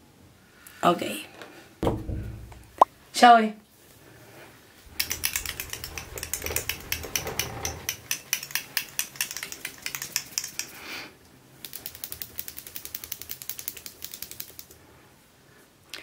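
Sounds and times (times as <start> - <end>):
mixing ball clicking in glass bottle: 4.9 - 10.8.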